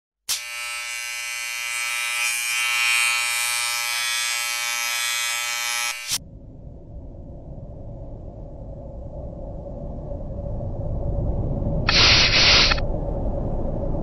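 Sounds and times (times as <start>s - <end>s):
electric buzz: 0.3s - 6.2s, 11.9s - 12.8s
low room rumble: 6.2s - 12.1s, 12.7s - 14.0s.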